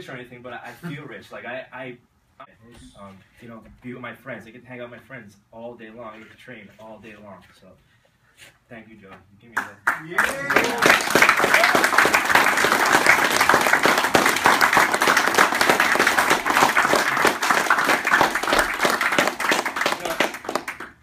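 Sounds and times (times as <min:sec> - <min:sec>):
crowd applauding: 0:09.6 - 0:21.0.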